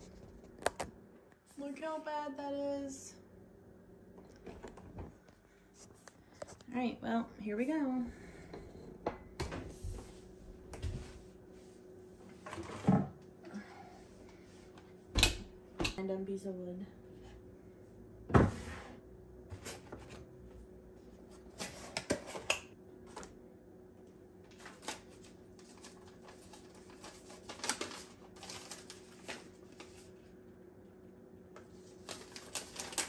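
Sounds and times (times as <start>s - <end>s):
faint steady hum: 0.0s - 33.0s
paper rustling: 24.5s - 30.2s, 31.8s - 33.0s.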